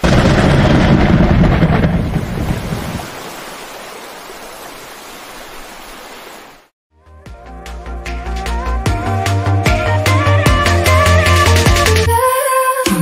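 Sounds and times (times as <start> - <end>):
thunder rumble: 0.0 - 3.5
rain hiss: 2.2 - 6.7.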